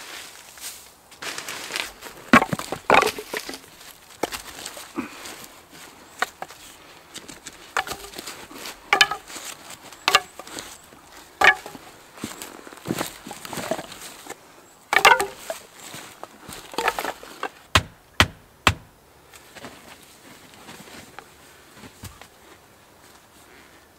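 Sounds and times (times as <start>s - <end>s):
axe chopping firewood: 2.3s - 4.7s, 7.7s - 8.3s, 8.9s - 10.6s, 11.4s - 11.8s, 14.9s - 15.6s, 16.6s - 18.9s.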